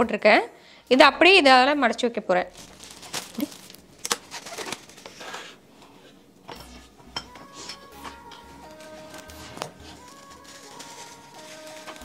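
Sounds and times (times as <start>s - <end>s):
plastic cling wrap crinkling: 2.4s - 5.6s, 8.2s - 12.0s
soft background music: 5.8s - 12.0s.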